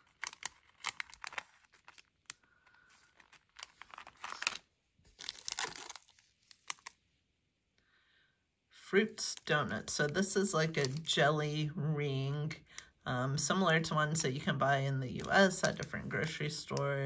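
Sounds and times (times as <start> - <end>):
plastic wrappers crinkling: 0.0 - 7.0, 9.2 - 11.2, 15.1 - 16.9.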